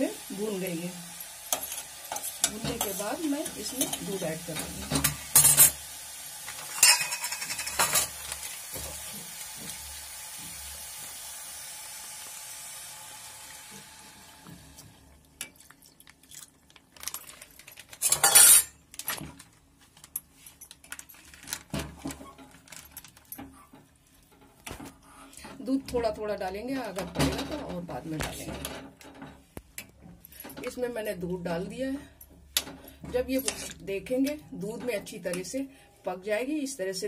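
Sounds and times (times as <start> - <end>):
frying sizzle: 0.0 - 15.5
steel spoon scraping steel pot: 18.1 - 18.7.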